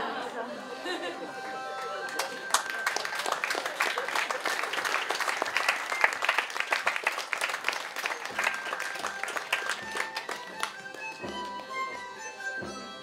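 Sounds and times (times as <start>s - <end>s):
audience applauding: 1.8s - 11.8s
medieval-style instrumental music: 8.2s - 13.0s.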